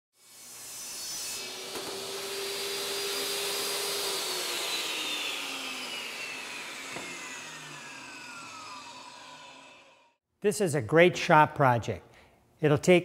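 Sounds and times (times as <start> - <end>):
table saw whining and spinning down: 0.2 - 10.2.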